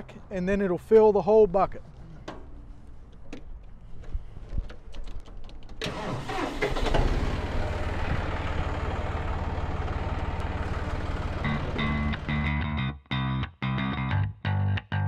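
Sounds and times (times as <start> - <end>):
tractor diesel engine revving: 5.8 - 12.6.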